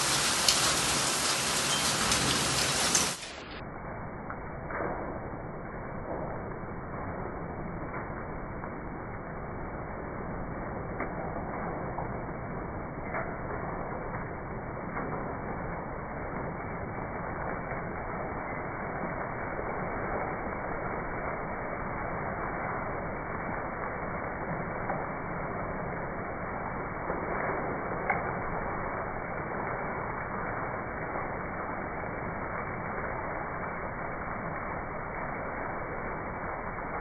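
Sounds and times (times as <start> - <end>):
steady rain: 0.0 - 37.0
sharp tick: 28.0 - 28.3.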